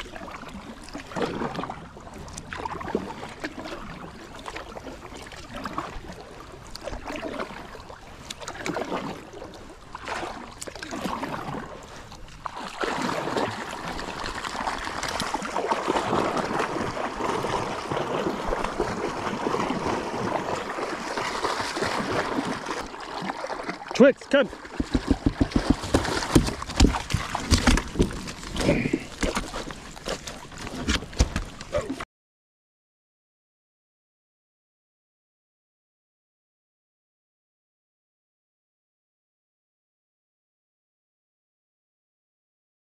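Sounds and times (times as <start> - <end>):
kayak paddle strokes swishing: 0.0 - 32.0
rush of moving water: 0.0 - 32.0.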